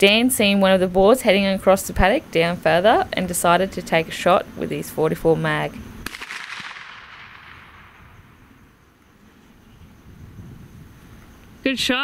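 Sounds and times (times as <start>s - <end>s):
gunshot echo: 6.0s - 8.4s.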